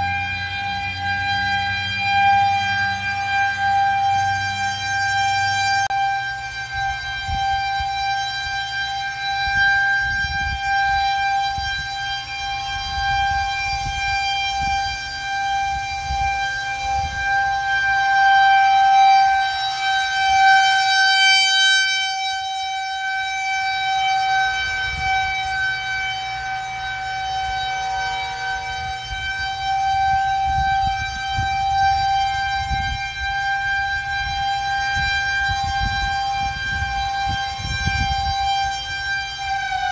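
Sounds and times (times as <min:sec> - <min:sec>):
rotating warning siren: 0:00.0 - 0:39.9.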